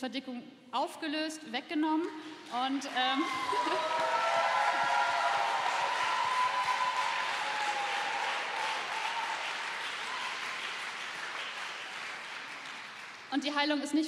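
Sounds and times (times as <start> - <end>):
congregation applauding: 2.8 - 13.4.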